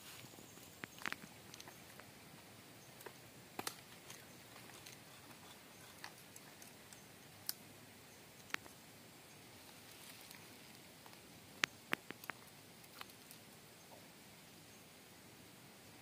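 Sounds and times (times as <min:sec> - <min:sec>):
faint sharp clicks and taps: 0:10.2 - 0:14.0.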